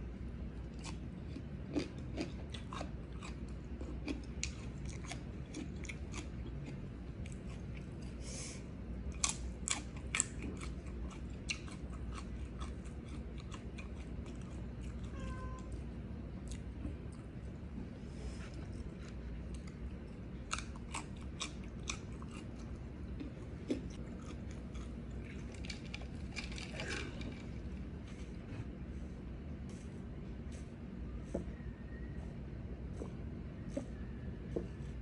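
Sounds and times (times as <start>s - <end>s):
person chewing food: 0.5s - 8.2s, 9.0s - 32.1s.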